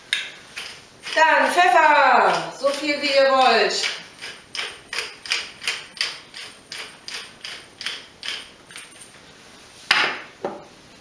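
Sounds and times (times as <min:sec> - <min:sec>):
pepper mill grinding: 0:00.5 - 0:09.1.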